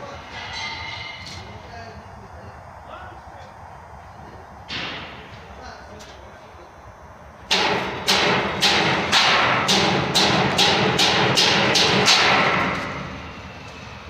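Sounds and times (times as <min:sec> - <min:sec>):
hammer striking metal: 0:00.3 - 0:01.5, 0:07.5 - 0:13.0.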